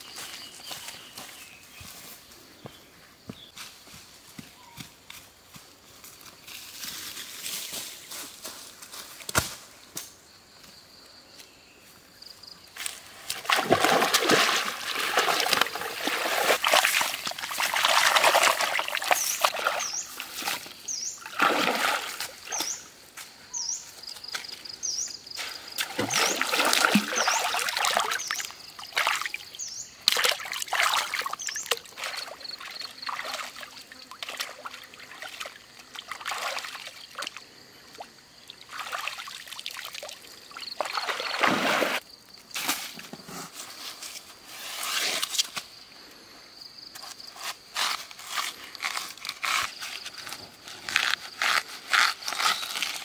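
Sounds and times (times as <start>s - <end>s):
water splashing as someone wades: 13.3s - 20.5s, 21.2s - 22.6s, 25.8s - 28.3s, 30.1s - 37.4s, 38.6s - 42.0s.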